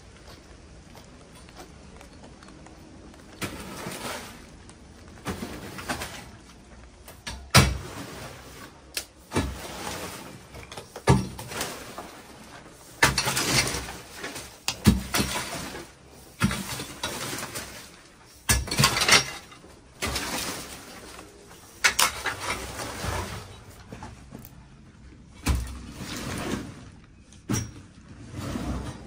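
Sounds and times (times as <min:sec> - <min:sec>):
rake scraping through leaves: 0:03.4 - 0:04.6, 0:07.9 - 0:10.5
metal rake clattering on concrete: 0:13.0 - 0:21.2.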